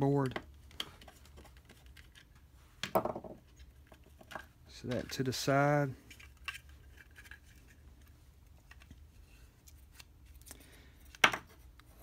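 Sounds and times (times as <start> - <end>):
faint plastic clicks and handling: 6.0 - 12.0.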